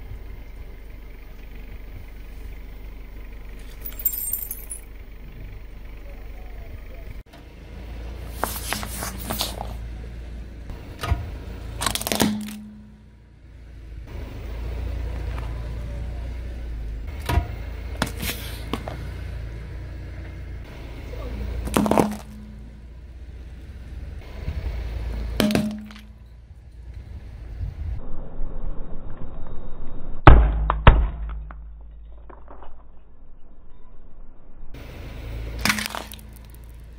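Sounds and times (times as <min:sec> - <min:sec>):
car engine rumble: 0:00.0 - 0:36.9
tyre crushing plastic objects: 0:11.8 - 0:12.6, 0:21.7 - 0:22.4, 0:35.6 - 0:36.7.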